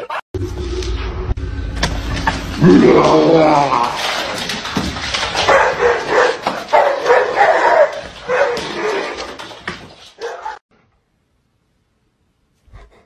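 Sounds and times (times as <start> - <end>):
dog barking: 5.5 - 9.1, 10.2 - 10.6.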